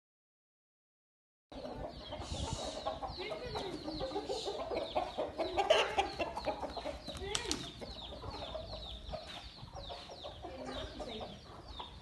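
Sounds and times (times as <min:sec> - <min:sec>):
chickens clucking: 0:01.5 - 0:12.0
sharp clicks: 0:07.1 - 0:07.7.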